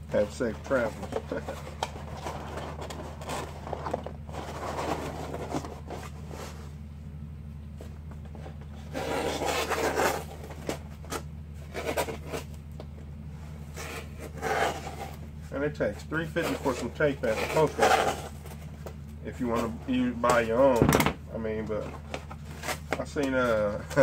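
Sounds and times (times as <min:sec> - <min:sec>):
low electrical hum: 0:00.0 - 0:24.0
cardboard rubbing and scraping: 0:00.6 - 0:06.8, 0:08.3 - 0:12.6, 0:13.5 - 0:15.5, 0:16.2 - 0:20.6, 0:21.8 - 0:24.0.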